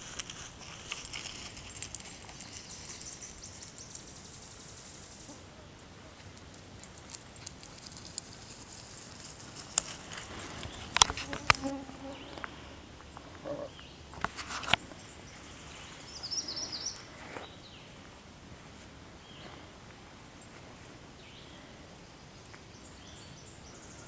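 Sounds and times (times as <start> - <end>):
faint high hiss: 0.0 - 24.0
twigs snapping underfoot: 7.2 - 12.6.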